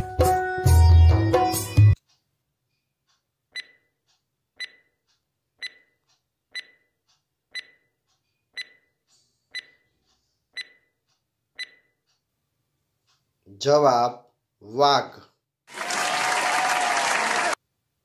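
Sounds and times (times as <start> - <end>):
clock ticking: 2.0 - 2.4, 3.0 - 14.0.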